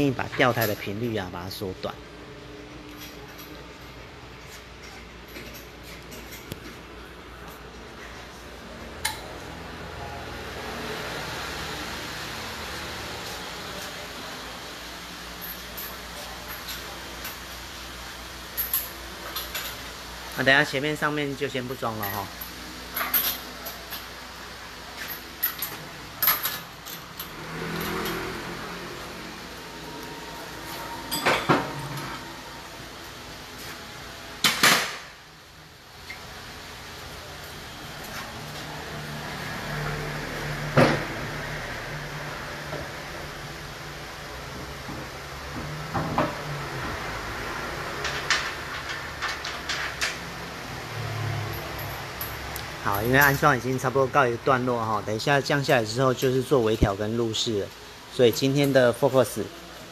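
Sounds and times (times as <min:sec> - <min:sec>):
metallic clinks and knocks: 0:30.7 - 0:32.3.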